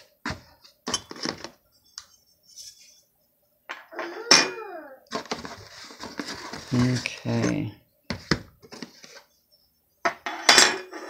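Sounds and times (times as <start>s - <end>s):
packaging rustling: 5.1s - 7.2s.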